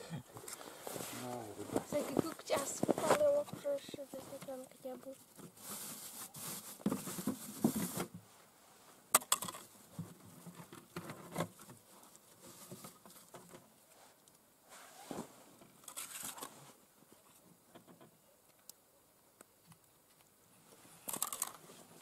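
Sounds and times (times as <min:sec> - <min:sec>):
rustling in plastic box: 0:00.4 - 0:08.3, 0:09.5 - 0:13.6, 0:14.8 - 0:16.8.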